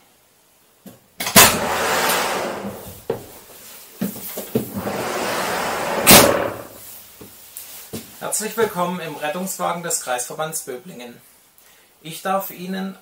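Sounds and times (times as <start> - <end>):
knocks and footsteps: 2.6 - 8.8
door shutting with bang: 5.9 - 6.7.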